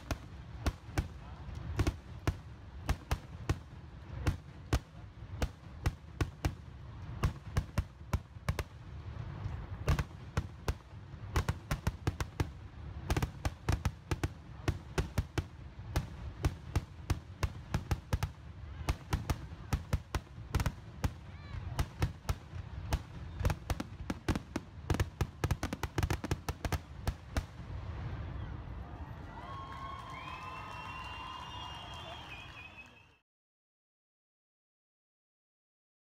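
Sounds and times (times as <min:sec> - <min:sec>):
fireworks bangs and crackles: 0:00.0 - 0:32.8.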